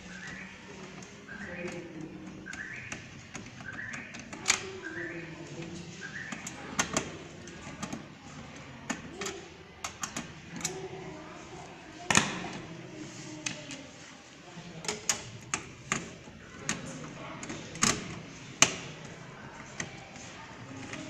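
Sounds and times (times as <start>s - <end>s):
plastic and sheet metal clicks: 0.1s - 11.0s, 12.0s - 12.7s, 14.8s - 21.0s.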